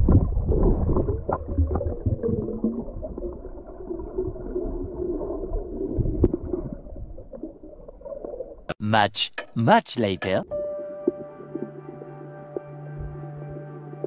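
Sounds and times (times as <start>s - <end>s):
underwater rumble: 0.0s - 8.7s.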